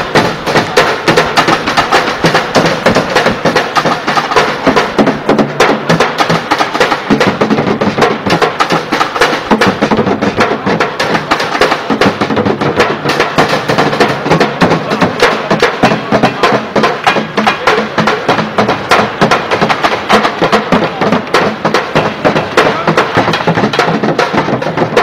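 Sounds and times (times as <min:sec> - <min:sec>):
drumming on buckets and pans: 0:00.0 - 0:25.0.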